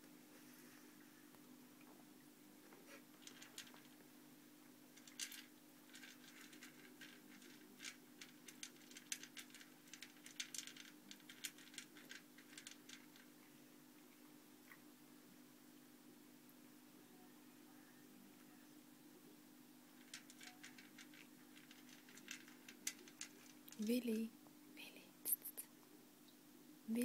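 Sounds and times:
faint steady low hum: 0.0s - 27.0s
cat crunching dry kibble: 3.1s - 3.9s, 5.0s - 13.4s, 19.9s - 23.7s.

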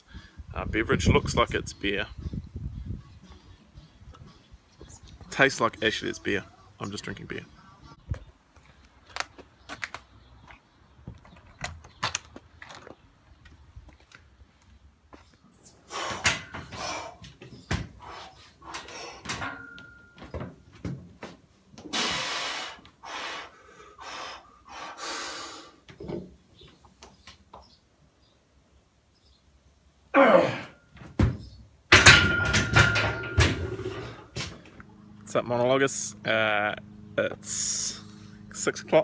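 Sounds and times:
loud breathy exhalations: 21.9s - 25.8s
barbell plates rattling: 31.9s - 34.2s.

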